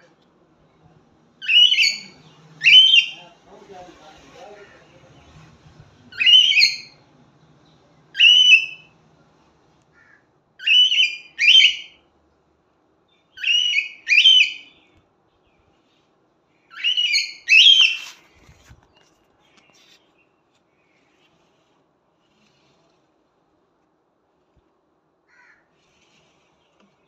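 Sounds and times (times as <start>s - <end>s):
cockatiel whistled calls: 1.4s - 3.2s, 6.1s - 7.0s, 8.2s - 8.9s, 10.6s - 12.0s, 13.4s - 14.7s, 16.7s - 18.1s.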